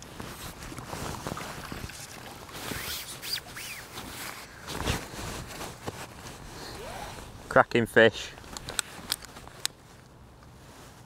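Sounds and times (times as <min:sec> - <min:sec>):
water splashing and dripping: 0:00.8 - 0:03.3.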